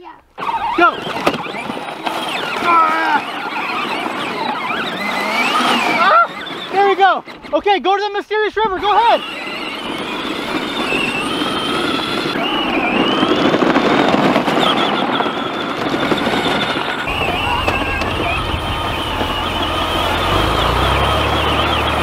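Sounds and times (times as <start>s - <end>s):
plastic wheels rattling: 0.4s - 20.9s
electric motor whine: 0.7s - 6.9s, 8.8s - 22.0s
low rumble: 17.0s - 21.9s.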